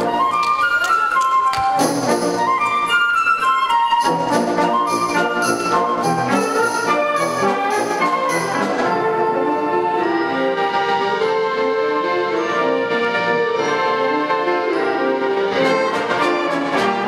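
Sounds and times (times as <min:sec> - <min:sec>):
concert band playing: 0:00.0 - 0:17.0
percussion beat: 0:01.0 - 0:03.0, 0:03.6 - 0:09.1.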